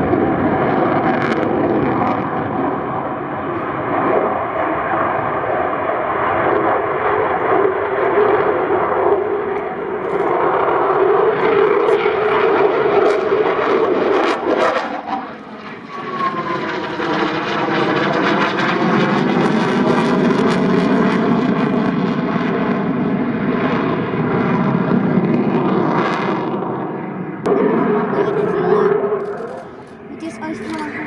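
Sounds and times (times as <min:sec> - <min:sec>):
falling jet whine: 0:00.0 - 0:31.0
jet engine crackling: 0:00.0 - 0:31.0
jet engines roaring: 0:00.0 - 0:31.0.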